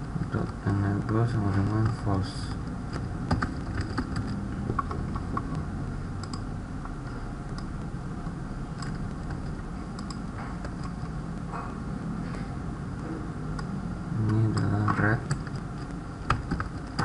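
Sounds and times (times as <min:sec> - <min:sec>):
low background noise: 0:00.0 - 0:17.0
keyboard typing: 0:00.2 - 0:05.6, 0:06.2 - 0:06.5, 0:08.7 - 0:11.2, 0:13.5 - 0:17.0.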